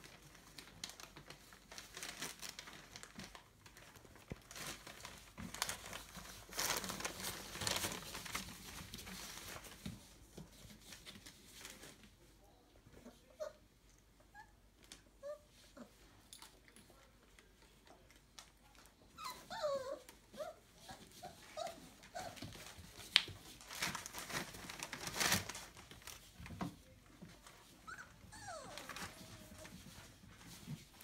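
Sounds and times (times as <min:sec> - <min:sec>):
rustling: 0:00.0 - 0:31.0
puppies whimpering: 0:19.2 - 0:22.4, 0:27.9 - 0:29.6.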